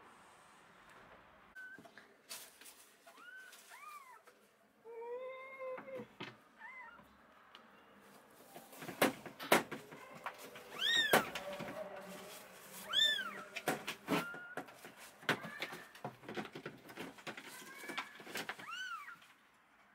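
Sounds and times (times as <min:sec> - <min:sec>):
kittens mewing: 0:10.7 - 0:11.4, 0:17.7 - 0:19.3.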